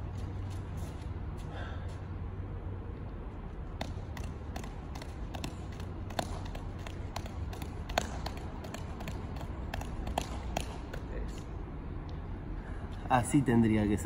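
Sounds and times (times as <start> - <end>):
juggling balls slapping into hands: 3.7 - 11.6.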